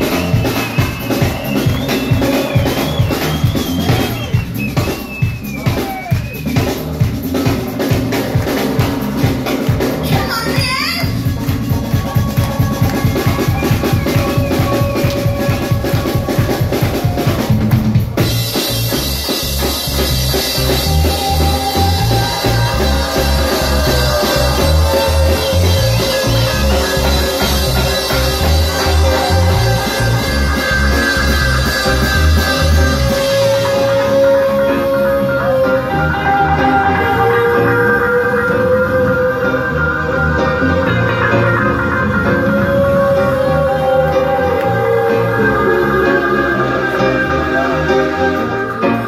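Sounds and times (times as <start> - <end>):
drums playing fast strokes: 0.0 - 34.9
bass guitar line: 0.0 - 49.0
reggae band playing: 0.0 - 49.0.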